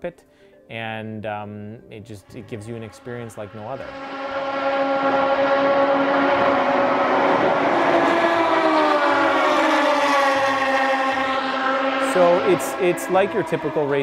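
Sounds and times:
race cars passing at high revs: 0:02.2 - 0:14.0.

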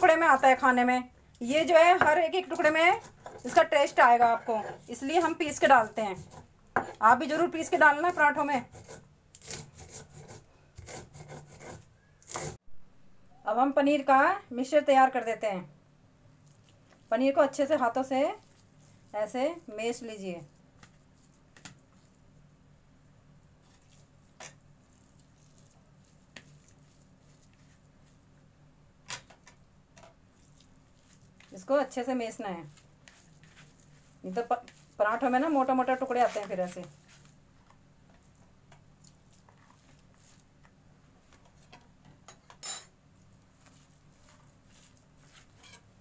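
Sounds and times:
fingers mashing cheese in bowl: 0:23.6 - 0:28.3, 0:30.2 - 0:40.8, 0:43.2 - 0:45.6.

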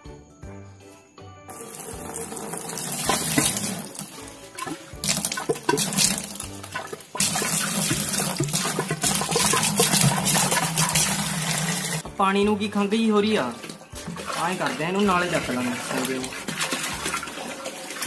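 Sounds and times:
tap water running into bucket: 0:01.5 - 0:12.0, 0:13.4 - 0:18.0.

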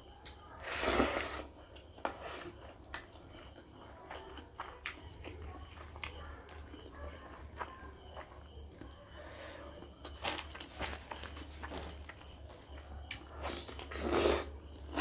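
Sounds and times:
chewing with wet mouth clicks: 0:01.7 - 0:09.0.

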